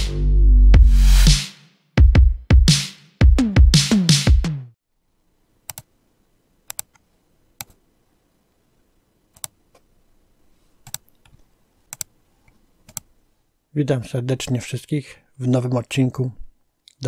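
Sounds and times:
computer mouse clicks: 5.7 - 5.9, 6.7 - 7.8, 9.3 - 9.9, 10.8 - 13.1.

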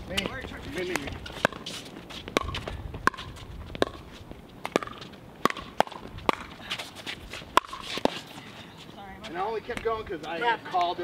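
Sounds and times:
paddles hitting plastic ball: 4.6 - 6.6, 7.5 - 8.2.

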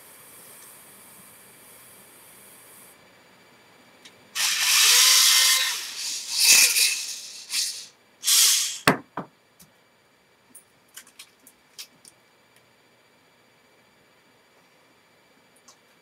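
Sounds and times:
toy motors and gears running: 4.4 - 8.9.

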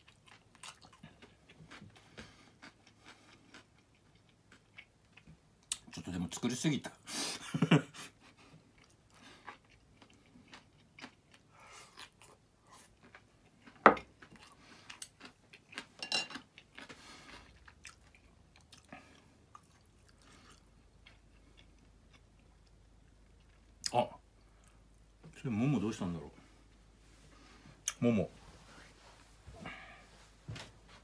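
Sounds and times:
person chewing and crunching: 0.0 - 6.0, 8.4 - 23.9.

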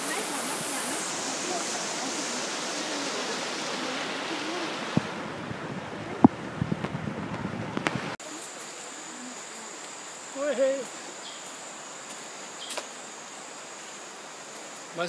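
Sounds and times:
insect drone: 0.0 - 5.2, 8.2 - 15.0
stream rushing over rocks: 0.0 - 15.0.

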